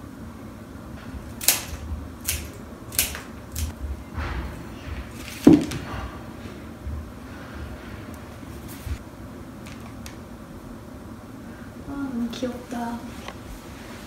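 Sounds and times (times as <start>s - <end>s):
flower stems clicking and rustling: 1.4s - 3.7s.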